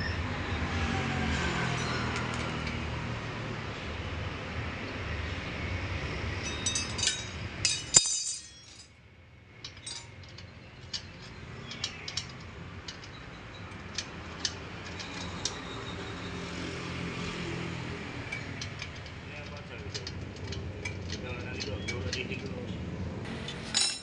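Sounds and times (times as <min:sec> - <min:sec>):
metal parts clinking: 0:06.4 - 0:09.0, 0:09.6 - 0:15.9, 0:23.4 - 0:24.0.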